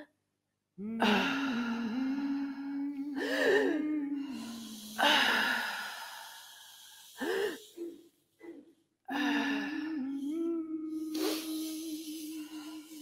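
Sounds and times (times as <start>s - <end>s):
breathy gasps and wheezes: 1.0s - 13.0s.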